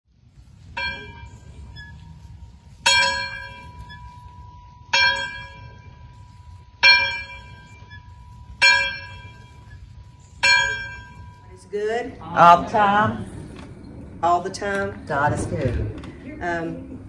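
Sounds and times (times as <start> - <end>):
low rumble: 0.1 - 17.0
church bell tolling: 0.7 - 11.7.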